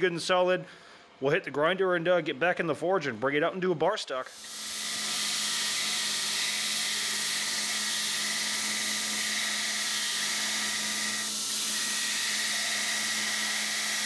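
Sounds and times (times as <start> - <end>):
belt grinder grinding metal: 4.4 - 14.0.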